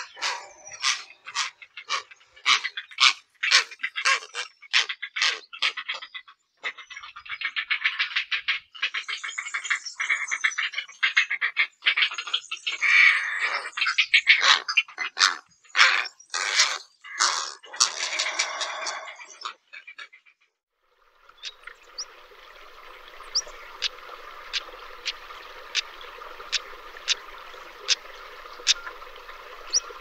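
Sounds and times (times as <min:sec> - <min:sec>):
heron calling: 0:00.0 - 0:06.0, 0:21.3 - 0:30.0.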